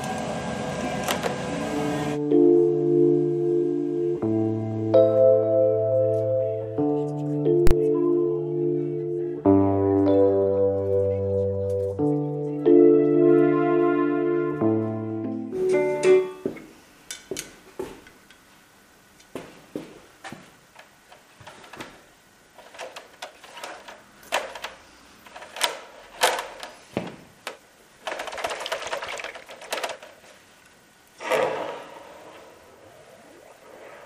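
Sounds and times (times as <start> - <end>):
music: 1.6 - 16.6
short scraping rush: 31.2 - 34.0.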